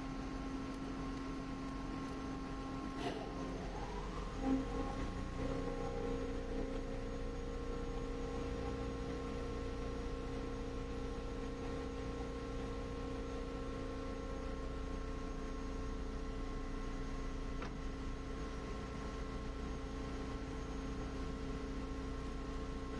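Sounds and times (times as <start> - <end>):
metal lathe humming: 0.0 - 16.7.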